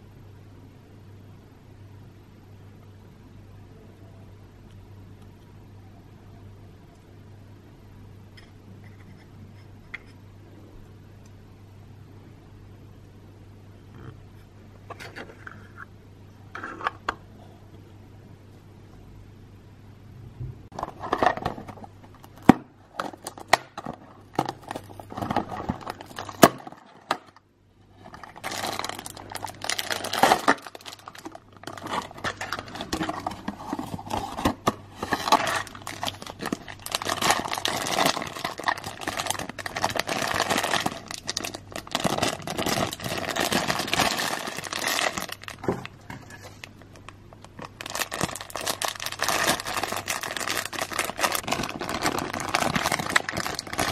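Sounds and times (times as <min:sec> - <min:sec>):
plastic wrapping crinkling: 0:20.7 - 0:53.9.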